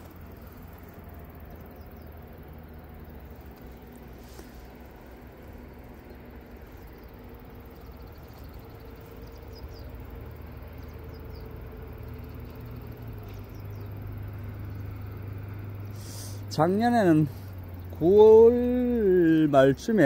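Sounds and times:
low mechanical hum: 0.0 - 20.0
faint high squeaky chirps: 6.1 - 14.9.

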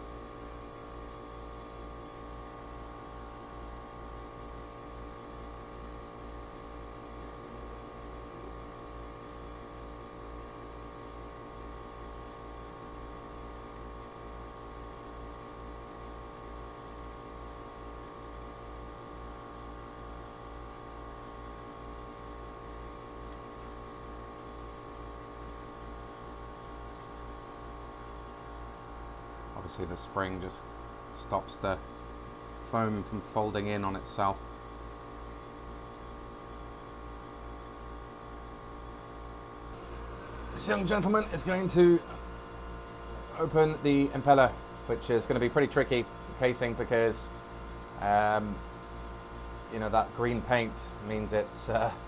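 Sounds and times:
steady machinery hum: 0.0 - 52.0
low rapid pulsing throb: 39.8 - 48.6.

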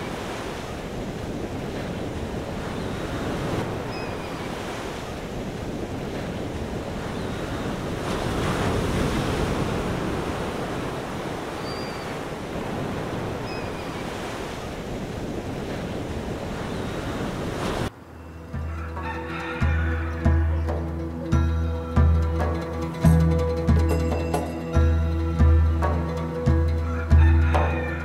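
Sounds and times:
surf washing onto sandy beach: 0.0 - 17.9
wind buffeting microphone: 0.0 - 17.9.

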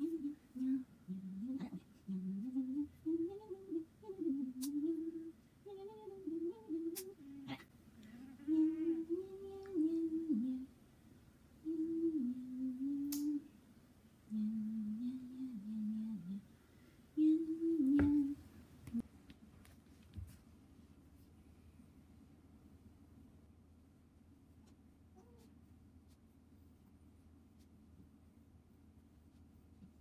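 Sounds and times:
woman humming: 0.0 - 10.7, 11.6 - 13.5, 14.3 - 16.4, 17.2 - 19.0.

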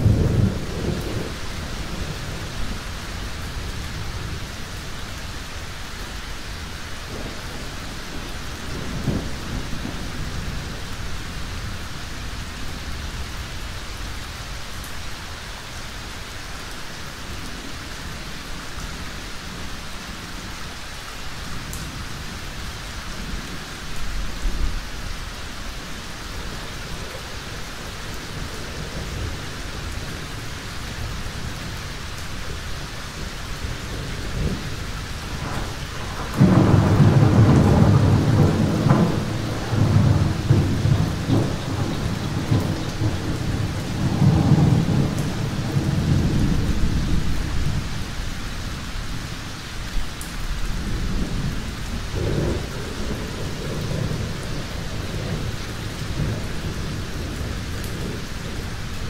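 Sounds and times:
thunder clap and rumble: 0.0 - 5.2, 7.1 - 13.2, 25.9 - 48.4, 49.9 - 59.0
rain falling: 0.0 - 59.0.

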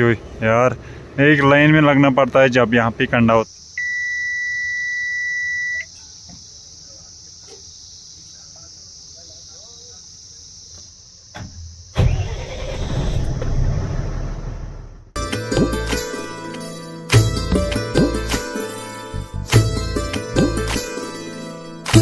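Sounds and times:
high warning beep: 3.8 - 5.9
diesel engine cranking and running: 12.0 - 15.1.

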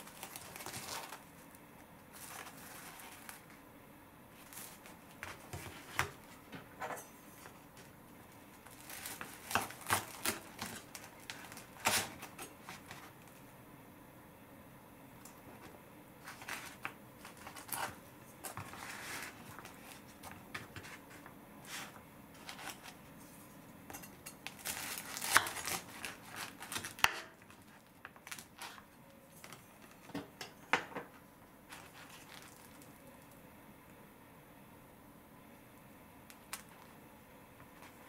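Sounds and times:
knife crunching through toasted crust: 8.9 - 10.9, 16.2 - 20.0, 24.0 - 28.8.

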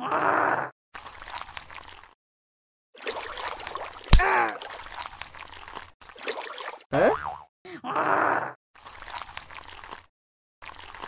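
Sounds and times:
water trickling and sloshing: 1.0 - 2.2, 3.0 - 6.9, 8.8 - 11.0.

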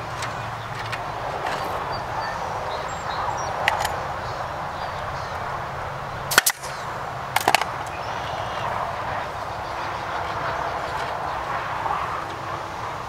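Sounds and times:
power stapler firing: 6.3 - 6.8.

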